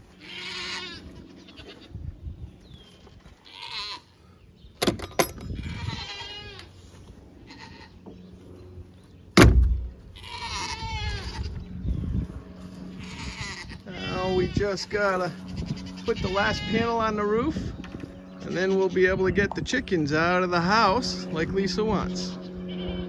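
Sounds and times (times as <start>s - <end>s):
farm animals bleating: 0.0s - 2.2s, 2.8s - 4.4s, 5.5s - 8.2s, 10.0s - 12.0s, 12.6s - 23.0s
wooden door banging shut: 9.4s - 9.9s.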